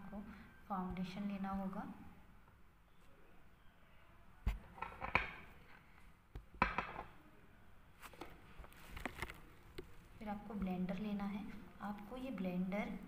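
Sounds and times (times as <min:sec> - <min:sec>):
glass bottle set down on tiles: 0:06.6 - 0:07.1.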